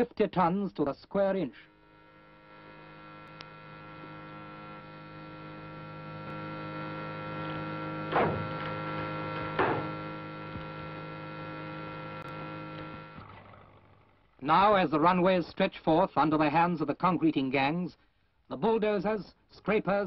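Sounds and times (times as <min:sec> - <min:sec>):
testing machine humming: 0:01.2 - 0:15.4.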